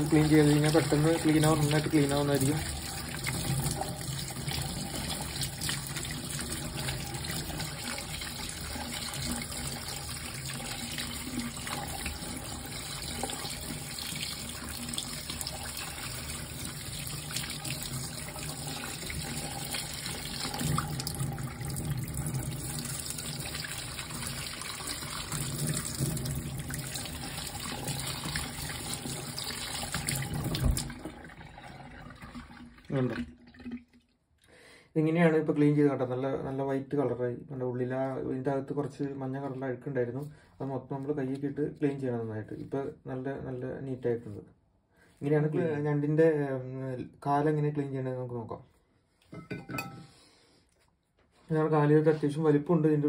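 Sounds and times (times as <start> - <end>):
tap running into metal sink: 29.9 - 31.0.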